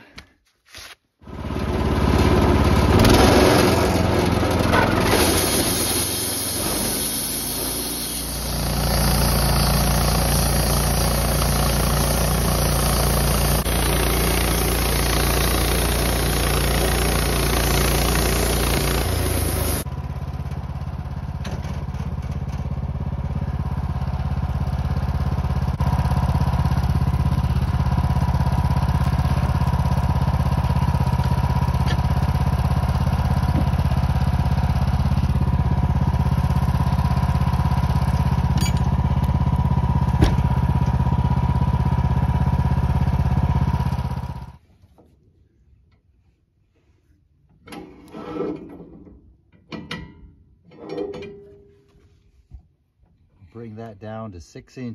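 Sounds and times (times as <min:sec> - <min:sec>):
saw blade whine: 0:01.3 - 0:19.9
band sawmill cutting log: 0:01.3 - 0:20.8, 0:25.7 - 0:44.6.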